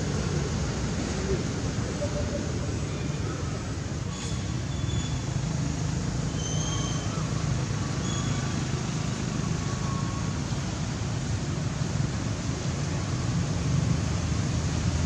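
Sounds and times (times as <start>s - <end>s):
low rumbling noise: 0.0s - 6.0s.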